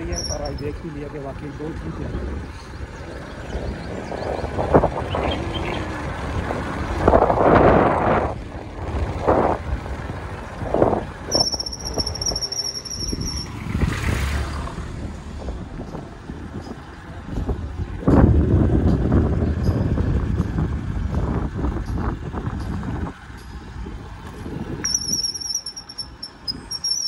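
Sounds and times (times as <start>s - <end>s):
thin high squeal: 0.0s - 0.7s, 11.3s - 13.7s, 24.8s - 27.0s
motorcycle engine running: 0.0s - 27.0s
wind rushing over microphone: 3.4s - 25.3s.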